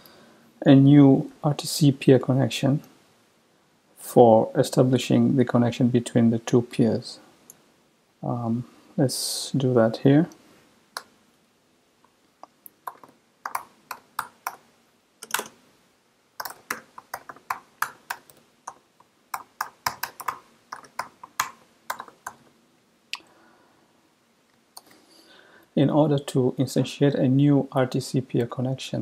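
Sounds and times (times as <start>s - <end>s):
keyboard keystroke clicks: 12.4s - 14.6s, 15.2s - 15.5s, 16.4s - 22.4s.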